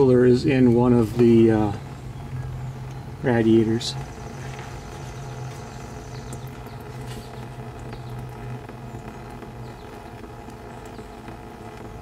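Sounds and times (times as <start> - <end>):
oil dripping: 0.0 - 12.0
steady low hum: 0.0 - 12.0.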